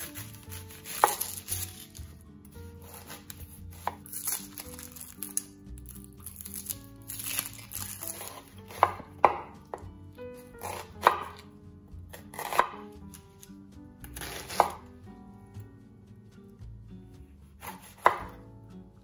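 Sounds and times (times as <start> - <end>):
knife chopping on cutting board: 0.0 - 1.6, 2.8 - 4.4, 7.3 - 9.9, 10.6 - 11.5, 12.1 - 13.2, 14.0 - 14.9, 17.6 - 18.4.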